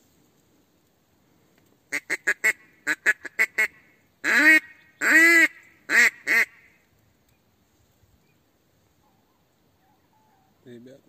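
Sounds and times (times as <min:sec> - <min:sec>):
duck call quacks: 0:01.9 - 0:06.7.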